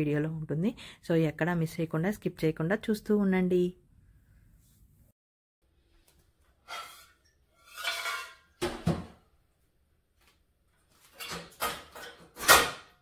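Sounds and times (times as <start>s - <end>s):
dishes clinking and clattering: 6.6s - 9.1s, 11.0s - 13.0s.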